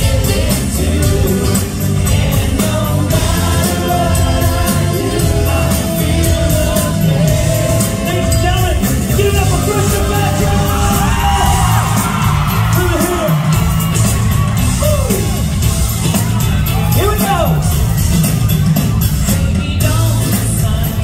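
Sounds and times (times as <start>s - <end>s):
man singing: 0.0s - 11.8s, 19.5s - 21.0s
live band playing pop song: 0.0s - 21.0s.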